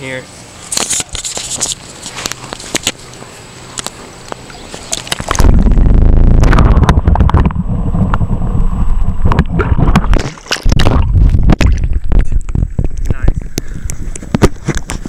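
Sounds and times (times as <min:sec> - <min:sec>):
underwater gurgling and sloshing: 0:03.2 - 0:15.0
water splashing: 0:03.7 - 0:15.0.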